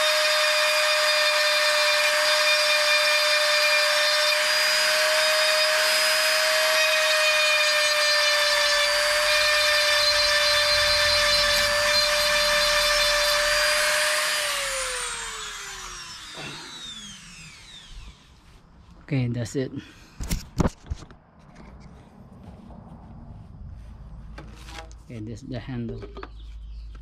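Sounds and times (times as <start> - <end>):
rotary tool grinding plastic: 0.0 - 18.3
rotary tool spinning down: 0.0 - 18.4.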